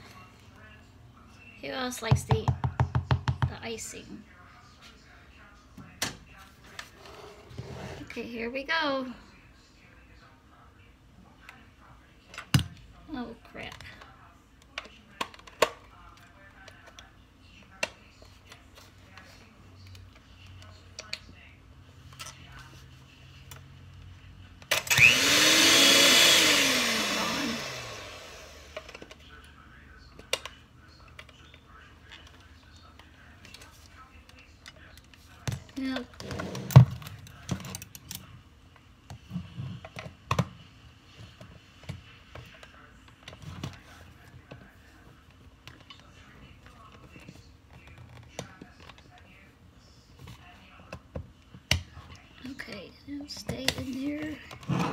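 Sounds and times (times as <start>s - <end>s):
mixer beaters clicking and rattling: 24.7s - 29.2s.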